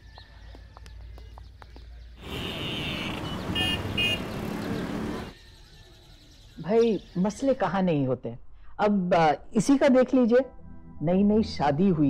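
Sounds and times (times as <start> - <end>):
car horn toots: 2.2 - 5.3
passing vehicles rushing: 2.2 - 5.4.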